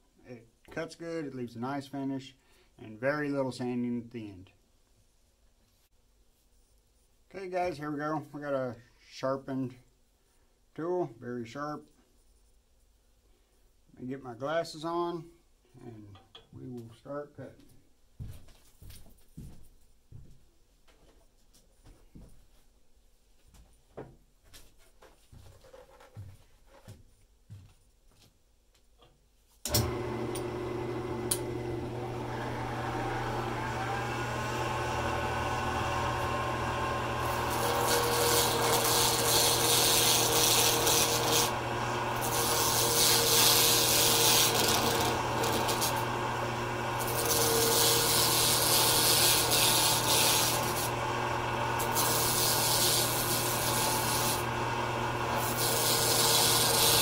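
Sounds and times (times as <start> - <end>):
lathe motor running: 29.7 - 57.0
chisel scraping spinning acrylic: 37.2 - 41.6, 42.2 - 46.0, 47.0 - 50.9, 51.8 - 54.4, 55.3 - 57.0.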